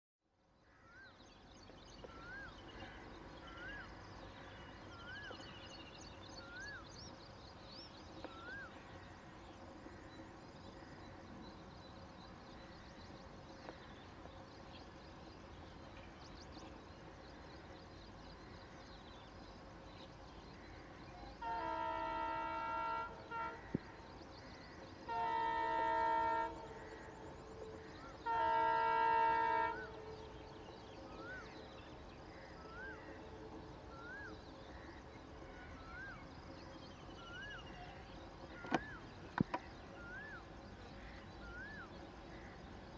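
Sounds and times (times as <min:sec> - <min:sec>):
locomotive air horn blasts: 0:21.4 - 0:23.7, 0:25.1 - 0:26.8, 0:28.2 - 0:30.0.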